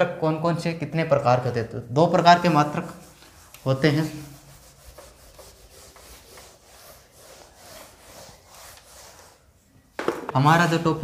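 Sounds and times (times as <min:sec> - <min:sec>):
eraser rubbing on whiteboard: 0:02.2 - 0:09.6.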